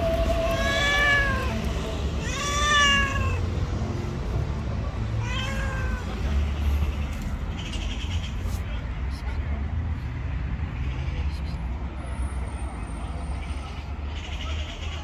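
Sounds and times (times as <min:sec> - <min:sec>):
cat meowing: 0:00.4 - 0:03.5, 0:05.2 - 0:06.6.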